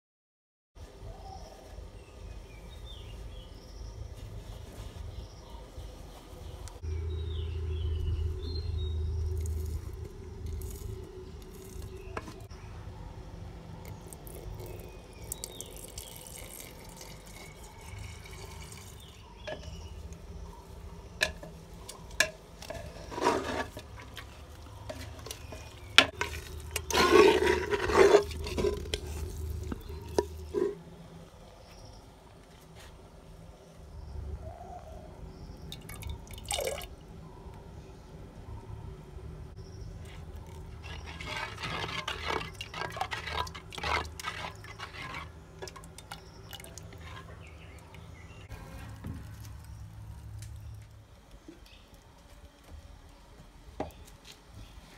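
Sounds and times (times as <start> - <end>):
wooden spoon stirring liquid: 13.9 - 30.8, 39.8 - 49.6.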